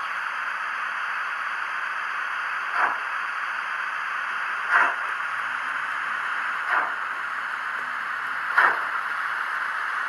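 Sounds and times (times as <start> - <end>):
steam hiss from small speaker: 4.6 - 6.0.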